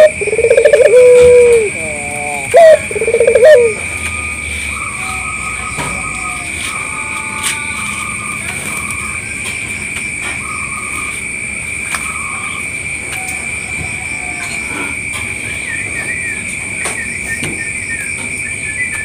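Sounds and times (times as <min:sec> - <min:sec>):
dove cooing: 0:00.0 - 0:06.9.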